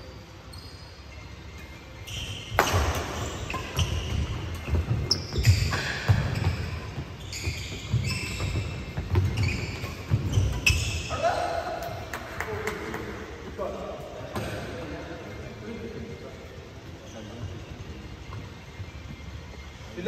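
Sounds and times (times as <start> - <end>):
shoe squeaks: 0.0 - 11.5, 16.9 - 20.0
racket striking shuttlecock: 2.5 - 6.4.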